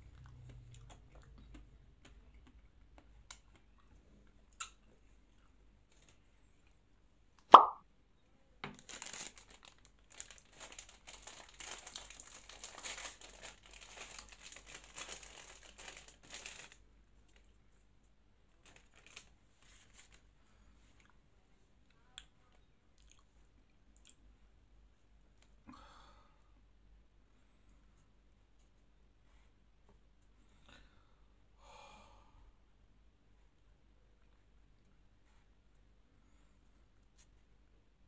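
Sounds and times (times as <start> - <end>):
plastic wrapper crinkling and tearing: 8.7 - 17.5, 18.6 - 20.2.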